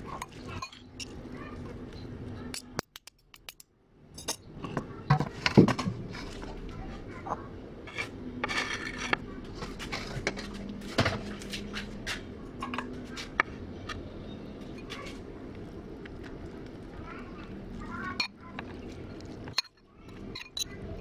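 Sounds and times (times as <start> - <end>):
dishes and utensils clinking: 0.0 - 1.2, 7.2 - 11.3, 12.6 - 14.0, 19.4 - 21.0.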